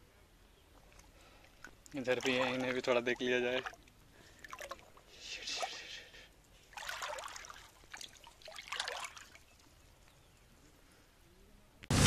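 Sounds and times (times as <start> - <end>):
fish splashing in water: 3.6 - 5.1, 6.7 - 10.0.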